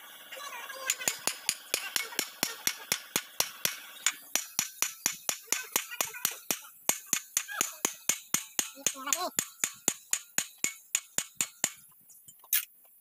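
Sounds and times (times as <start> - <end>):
hammer blows on steel: 0.9 - 11.8.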